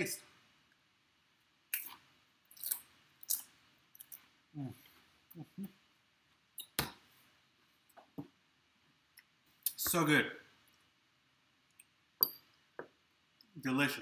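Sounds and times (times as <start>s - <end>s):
chip crunching: 1.7s - 4.2s.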